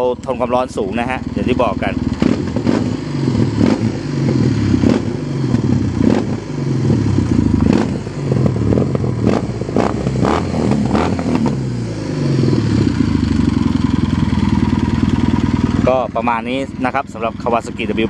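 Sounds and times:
motorcycle engine revving: 0.0s - 18.0s
exhaust pops and crackles: 1.8s - 6.4s.

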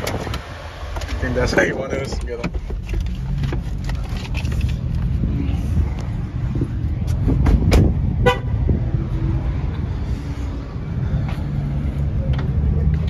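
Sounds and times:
parking lot rumble: 0.0s - 13.0s
wind on microphone: 5.0s - 11.2s
car horn toot: 8.2s - 8.6s.

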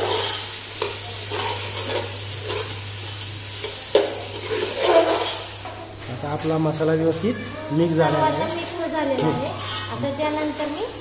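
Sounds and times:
masala sizzling in oil: 0.0s - 11.0s
metal spoon scraping a pot: 4.3s - 5.5s, 9.5s - 9.9s.

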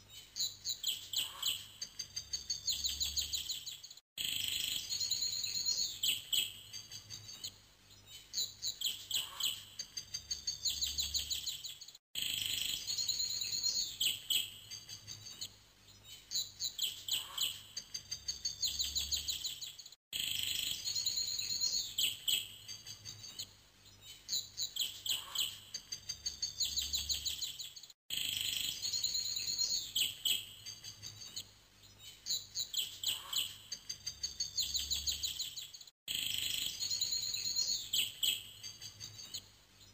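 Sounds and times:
birds chirping and trilling: 0.0s - 39.9s.

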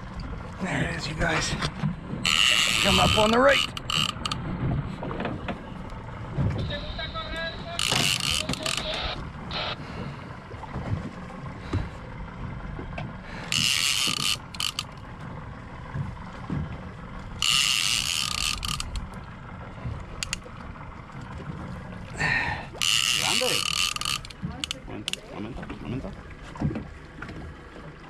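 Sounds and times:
fishing reel drag buzzing: 2.2s - 4.4s, 7.8s - 9.8s, 13.4s - 15.0s, 17.4s - 19.1s, 22.8s - 24.8s
soft reel clicks: 2.3s - 4.4s, 7.8s - 9.0s, 13.4s - 15.0s, 17.4s - 19.2s, 20.1s - 20.5s, 22.8s - 25.2s.

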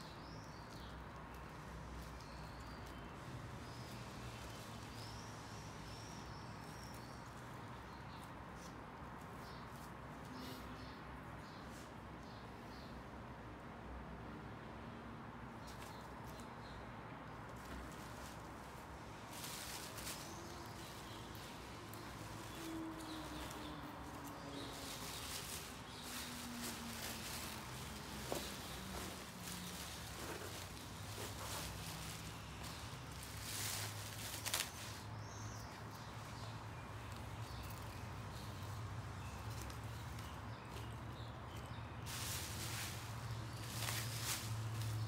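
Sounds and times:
plastic sheet crinkling: 19.3s - 35.1s
background hiss: 42.0s - 45.0s.

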